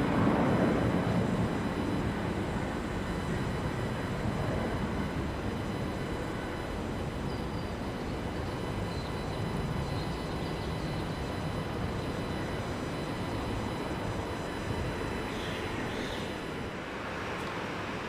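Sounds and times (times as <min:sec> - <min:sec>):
jet engines rumbling at takeoff: 0:00.0 - 0:18.0.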